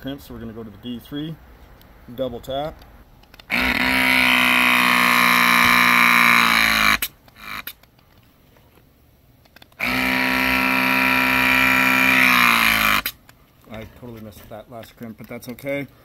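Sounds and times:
hydraulic crimper motor running: 0:03.3 - 0:07.9, 0:09.6 - 0:13.2.

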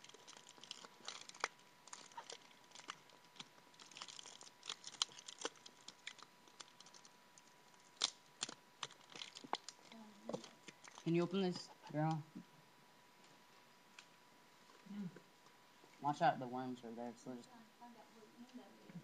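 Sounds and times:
paper crinkling and tearing: 0:00.0 - 0:11.2.

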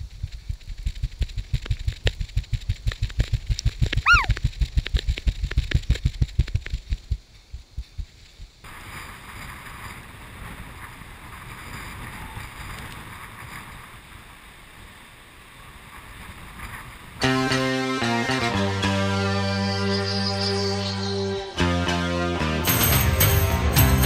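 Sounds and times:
wind on microphone: 0:00.0 - 0:17.2.

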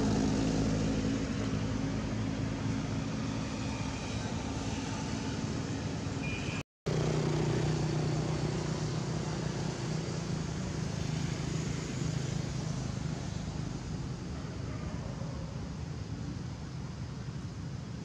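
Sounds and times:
low engine hum: 0:00.0 - 0:18.0
outdoor background noise: 0:00.0 - 0:18.0.

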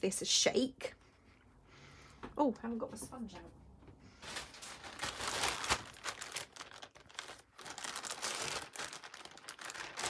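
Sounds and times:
plastic bag crinkling: 0:04.2 - 0:10.0.

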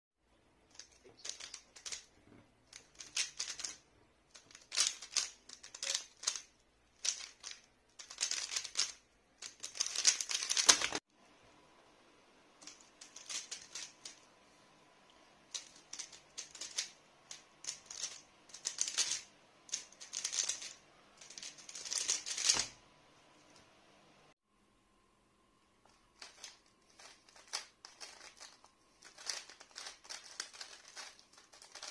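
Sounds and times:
rapid plastic clicking of cube: 0:00.7 - 0:11.0, 0:12.6 - 0:14.2, 0:15.5 - 0:22.8, 0:26.2 - 0:31.9.

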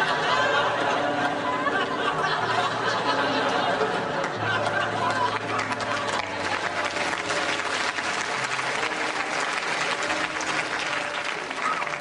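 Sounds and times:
murmur of voices: 0:00.0 - 0:12.0
audience clapping: 0:04.2 - 0:12.0.

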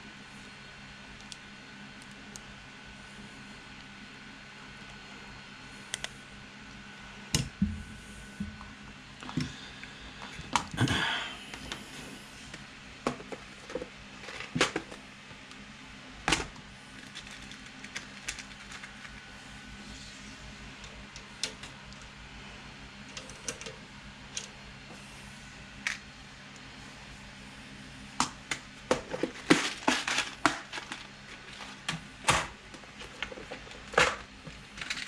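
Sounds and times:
low steady hum: 0:00.0 - 0:35.0
small parts clicking on mat: 0:17.0 - 0:19.2.

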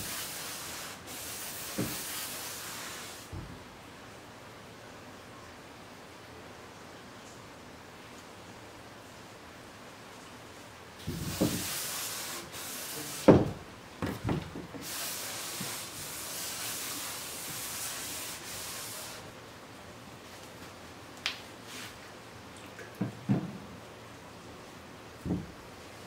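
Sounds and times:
cloth wiping wooden door: 0:00.0 - 0:03.4, 0:11.0 - 0:19.3
knocks against door: 0:25.2 - 0:25.6.

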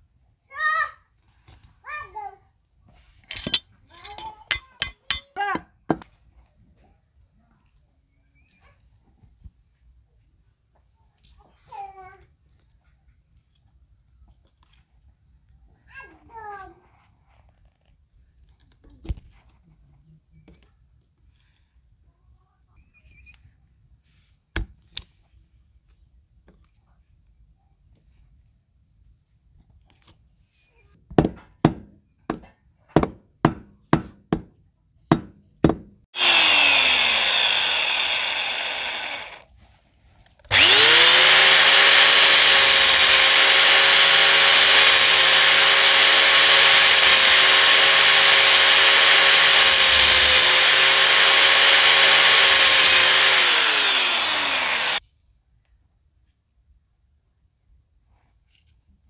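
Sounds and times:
angle grinder grinding metal: 0:03.3 - 0:05.4, 0:36.2 - 0:39.4, 0:40.5 - 0:55.0.

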